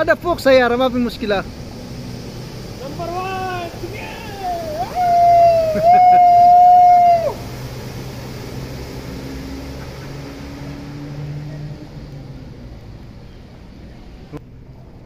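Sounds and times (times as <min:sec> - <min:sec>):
car engine running: 0:00.0 - 0:05.9
water splashing: 0:00.0 - 0:15.0
long loud shout: 0:03.1 - 0:07.4.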